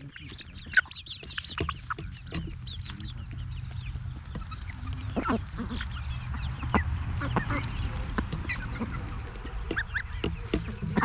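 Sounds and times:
young hens cheeping and clucking: 0.0 - 11.0
duck quacking: 4.8 - 6.0, 6.6 - 11.0.

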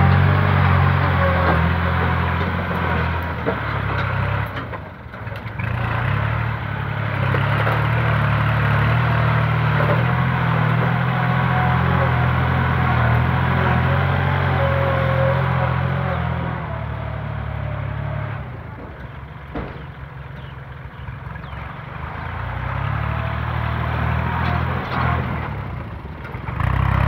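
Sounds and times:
tractor diesel engine droning: 0.0 - 27.0.

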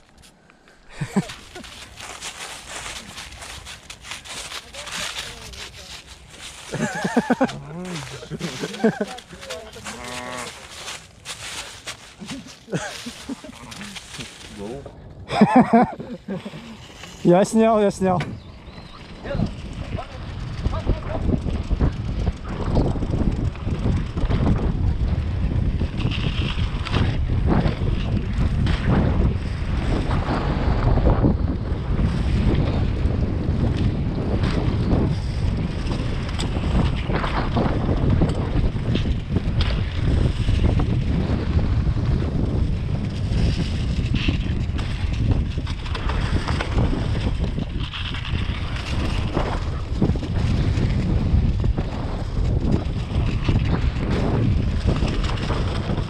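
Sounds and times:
tyres crunching over leaves: 0.0 - 18.2
tyres rumbling on dirt trail: 0.0 - 56.0
bike rattling over bumps: 0.8 - 56.0
wind buffeting microphone: 0.8 - 56.0.

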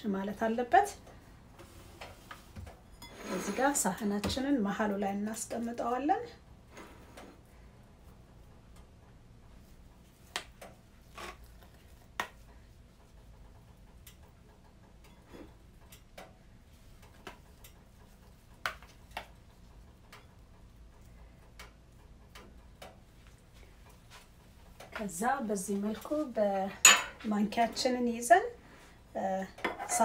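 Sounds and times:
spatula scraping bowl: 2.9 - 3.9.

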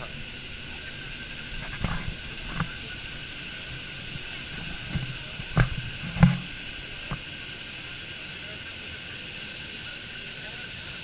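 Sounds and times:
gas turbines whining: 0.0 - 11.0
short dull thumps: 0.7 - 7.2.

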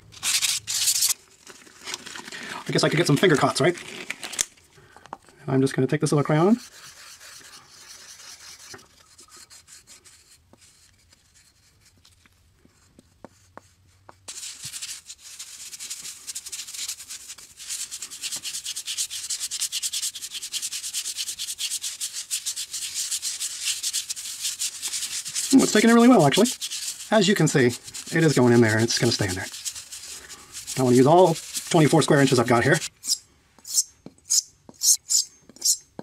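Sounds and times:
crayon rubbing on wood: 6.5 - 11.9, 12.8 - 35.8
gloved fingers rubbing wood: 6.5 - 12.0, 12.8 - 35.9.

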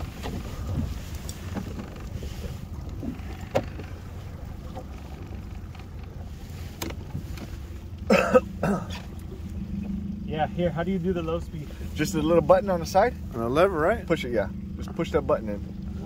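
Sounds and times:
wind buffeting microphone: 0.0 - 7.8
boat motor idling: 0.0 - 16.0.

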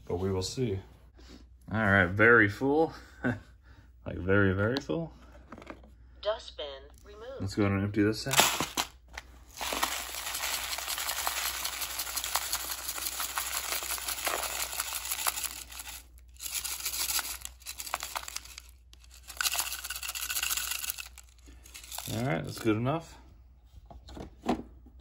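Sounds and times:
dry grains pouring onto plate: 9.6 - 18.5, 19.1 - 22.6.

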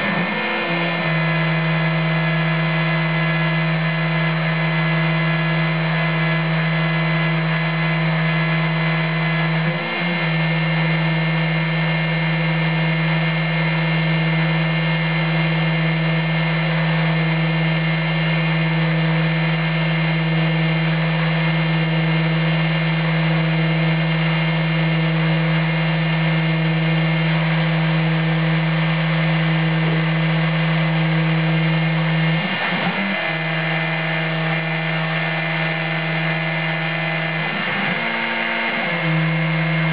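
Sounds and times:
rotary tool whine: 0.0 - 12.3, 23.2 - 39.9.

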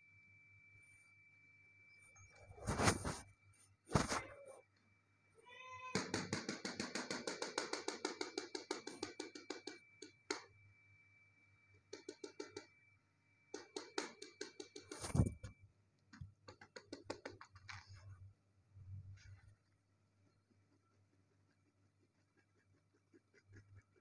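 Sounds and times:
fast scratching strokes: 2.5 - 3.3, 14.9 - 15.5.

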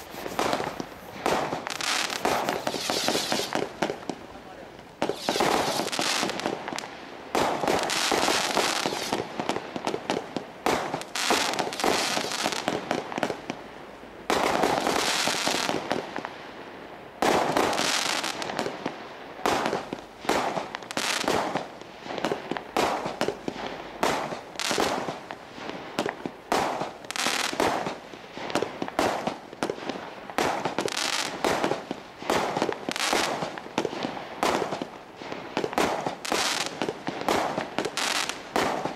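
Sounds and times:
fireworks shot launches: 0.0 - 4.0, 5.0 - 6.5
fireworks aerial bursts: 0.0 - 9.3, 10.7 - 13.3, 19.4 - 38.9
dense fireworks crackling: 0.0 - 38.9.

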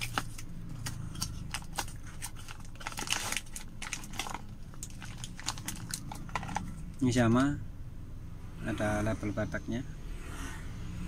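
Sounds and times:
cardboard box and plastic bag handled: 1.5 - 6.6.

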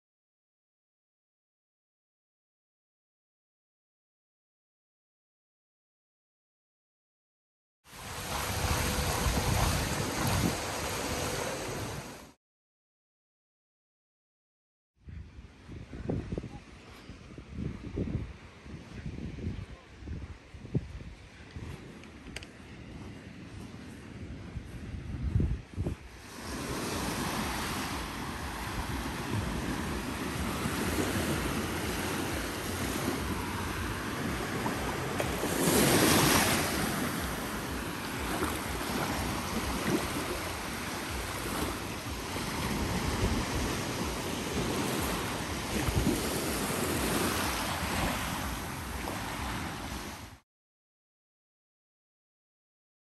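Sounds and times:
small waves breaking on sand: 7.9 - 12.4, 25.9 - 50.4
wind buffeting microphone: 8.0 - 12.3, 15.0 - 50.3.

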